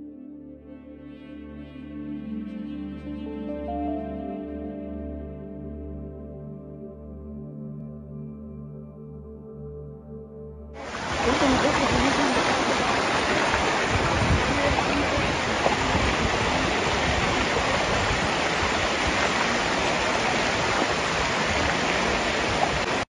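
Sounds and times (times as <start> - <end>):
floodwater rushing: 10.8 - 23.0.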